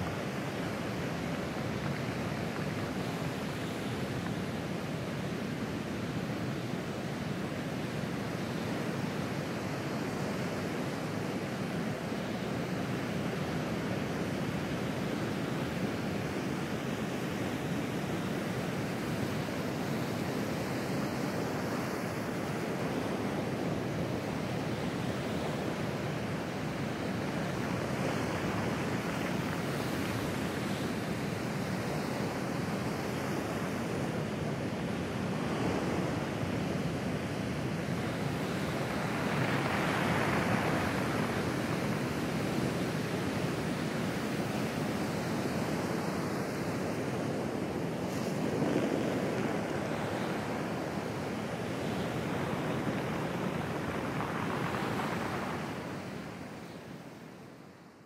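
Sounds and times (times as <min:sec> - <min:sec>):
surf breaking on pebble beach: 0:48.0 - 0:56.2.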